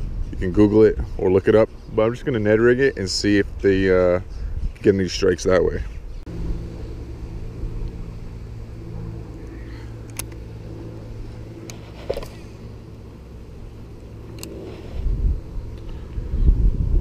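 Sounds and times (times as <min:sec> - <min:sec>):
low mechanical hum: 0:00.0 - 0:17.0
sharp clicks: 0:09.4 - 0:10.5, 0:14.0 - 0:14.7.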